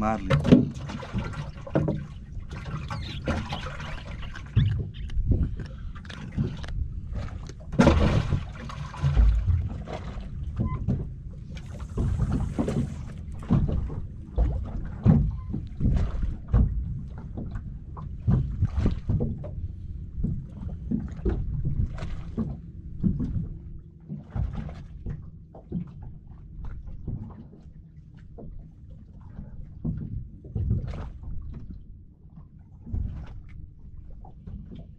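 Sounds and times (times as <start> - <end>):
wind rumbling on microphone: 0.0 - 25.2
water lapping against boat hull: 0.0 - 34.9.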